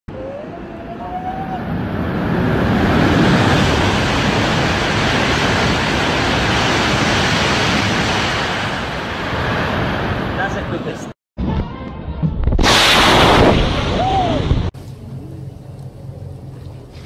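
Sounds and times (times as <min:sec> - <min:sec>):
high-speed train passing: 0:00.4 - 0:09.1.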